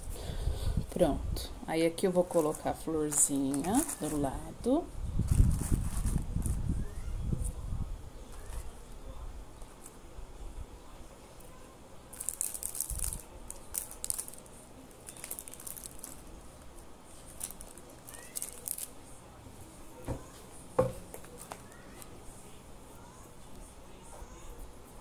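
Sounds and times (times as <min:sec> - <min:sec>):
craft materials crinkling: 0:02.2 - 0:04.4, 0:05.2 - 0:06.6, 0:12.1 - 0:19.0
soft knocks: 0:20.0 - 0:21.1.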